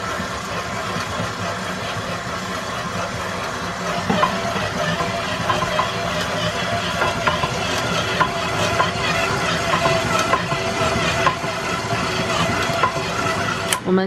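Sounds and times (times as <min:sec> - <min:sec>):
stand mixer motor hum: 0:00.0 - 0:14.0
dough hook knocking: 0:03.7 - 0:13.8.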